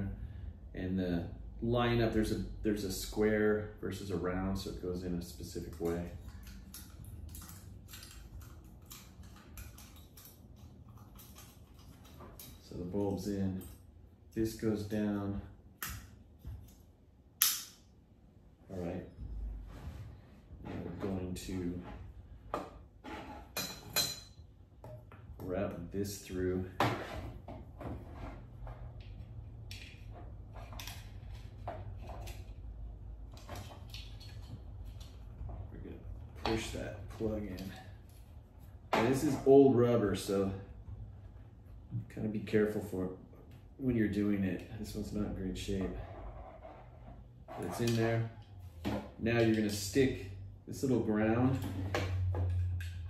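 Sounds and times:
low background hum: 0.0 - 53.0
wiring rustling and scraping: 25.5 - 42.0, 44.8 - 50.2.

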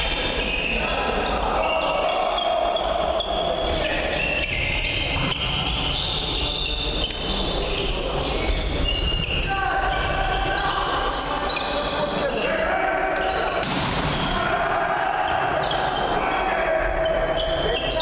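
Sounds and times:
sneakers squeaking on floor: 0.2 - 12.3, 13.1 - 14.4, 15.2 - 16.2, 17.0 - 18.0
sharp ball hits: 13.6 - 14.2.

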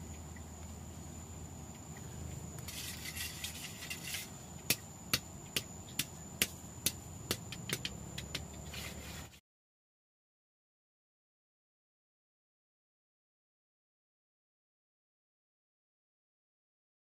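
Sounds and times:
tools scraping wet concrete: 2.6 - 4.8
sharp tool taps: 4.7 - 8.5.

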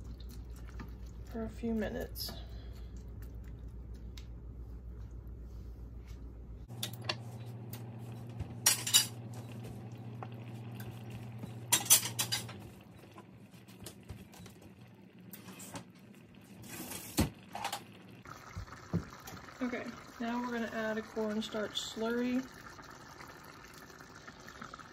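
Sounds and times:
low steady hum: 0.0 - 24.9
cookware clinks and knocks: 11.7 - 12.6.

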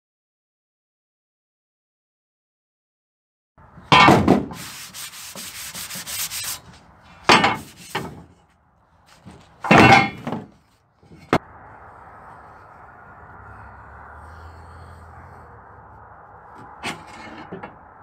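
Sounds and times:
heavy metal clunks: 3.9 - 4.6, 7.2 - 8.4, 9.2 - 11.4
metal scraping: 3.9 - 18.0.

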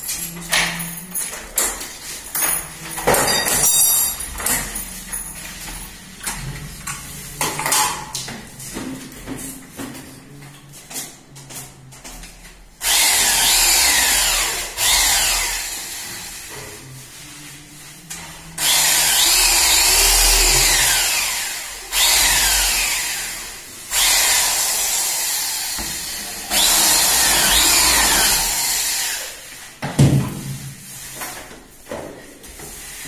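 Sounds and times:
electric drill boring into wood: 12.8 - 16.4, 18.6 - 29.4.

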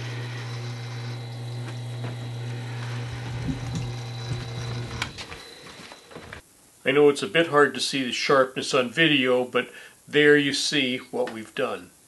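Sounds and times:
sharpener motor hum: 0.0 - 5.4.

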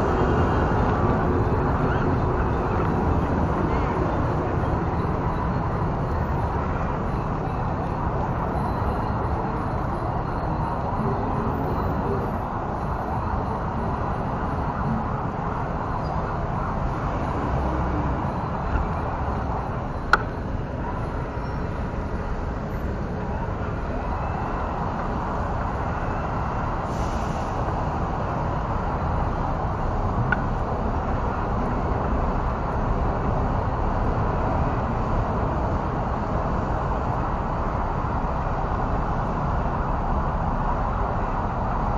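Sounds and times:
city traffic: 0.0 - 41.9.

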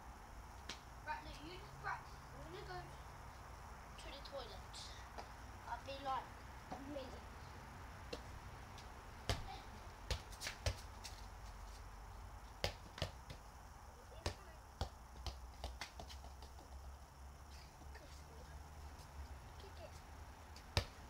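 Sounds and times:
football thudding on paving: 8.1 - 11.2, 12.5 - 17.0, 20.6 - 21.0.

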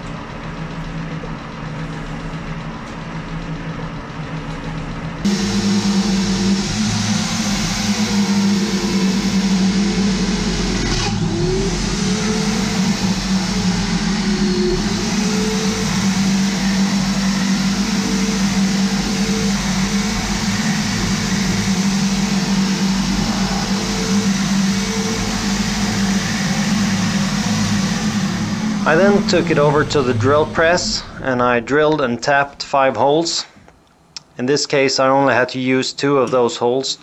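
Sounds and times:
drill press drilling steel: 5.3 - 31.1.

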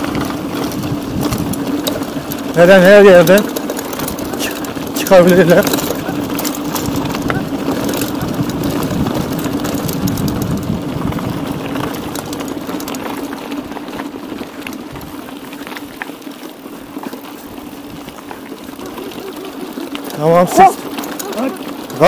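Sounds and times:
clicks and rattles: 0.0 - 13.5
bike tyre rolling: 0.0 - 22.0
wind on microphone: 5.9 - 12.2.

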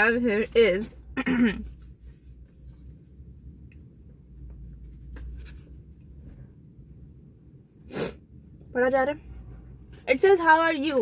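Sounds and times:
paper rustling and crinkling: 4.8 - 5.8.

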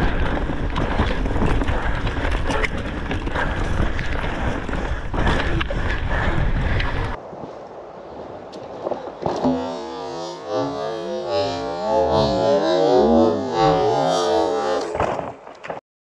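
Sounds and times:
bike tyres rumbling on stone: 0.0 - 7.2, 8.2 - 10.6, 11.4 - 15.8
wind buffeting microphone: 0.0 - 9.5.

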